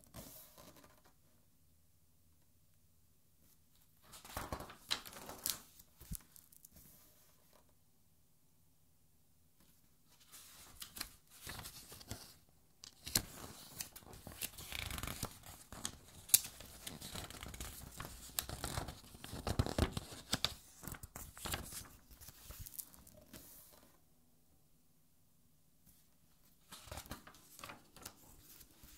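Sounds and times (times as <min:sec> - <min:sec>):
paper pages turning: 0:04.1 - 0:07.0, 0:10.2 - 0:23.9, 0:26.6 - 0:28.9.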